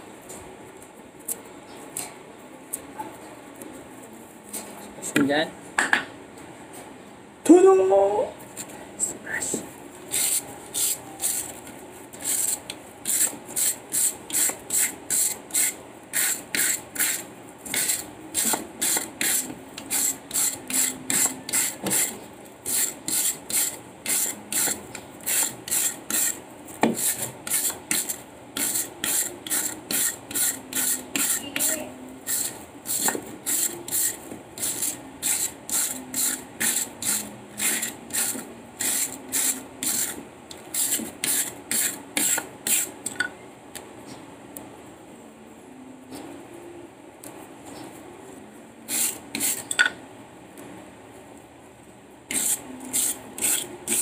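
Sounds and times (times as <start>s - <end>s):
wire brush scraping coconut: 10.1s - 43.1s, 48.9s - 49.8s, 52.3s - 54.0s.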